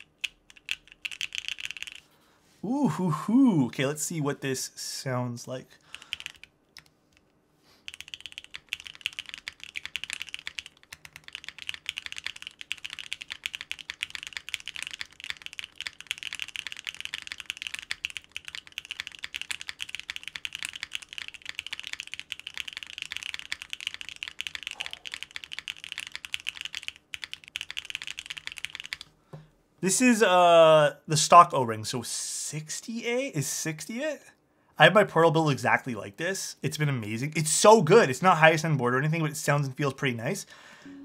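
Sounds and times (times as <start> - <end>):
fast typing on mechanical keyboard: 0.0 - 2.0, 5.9 - 6.9, 7.8 - 29.1.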